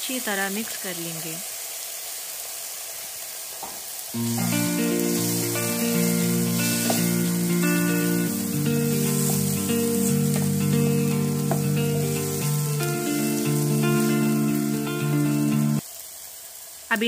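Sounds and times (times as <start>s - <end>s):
vegetables sizzling in hot oil: 0.0s - 17.0s
background music of held notes: 4.2s - 15.8s
wooden spatula stirring: 9.0s - 10.6s.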